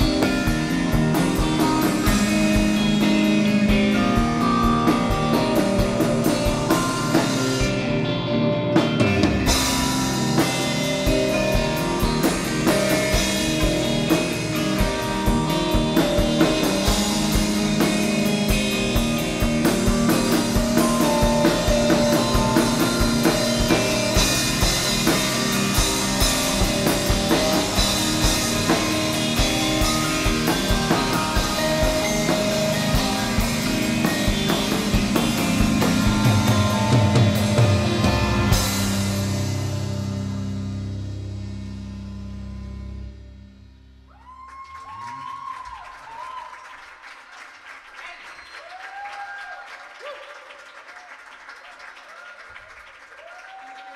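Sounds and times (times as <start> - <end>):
steady drumming: 0.0 - 8.1, 8.8 - 41.6
rock band playing live: 0.0 - 43.7.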